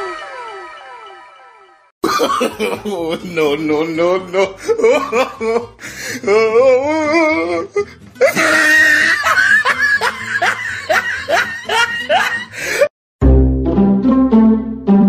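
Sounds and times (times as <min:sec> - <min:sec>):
comic laughter sound effect: 0:02.0 - 0:03.3, 0:04.2 - 0:05.8, 0:08.2 - 0:12.9
music: 0:02.5 - 0:15.0.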